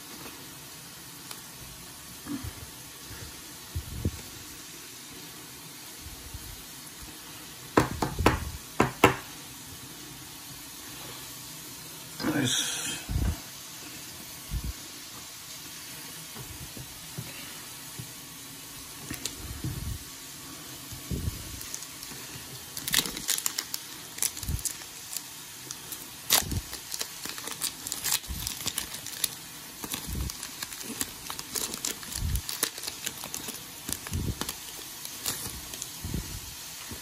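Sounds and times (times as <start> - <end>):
steady background hiss: 0.0 - 37.0
foil wrapper crinkling and tearing: 19.0 - 19.5, 21.4 - 36.1.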